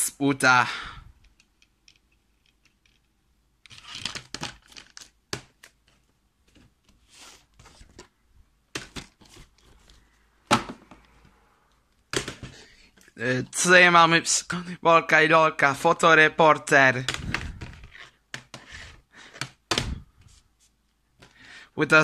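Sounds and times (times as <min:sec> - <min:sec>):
plastic cases clicking and rustling: 0:01.2 - 0:11.3, 0:12.0 - 0:13.2.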